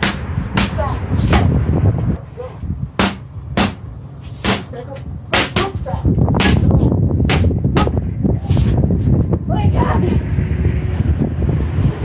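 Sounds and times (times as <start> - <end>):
boxing gloves hitting mitts: 3.0 - 4.7, 5.3 - 6.7.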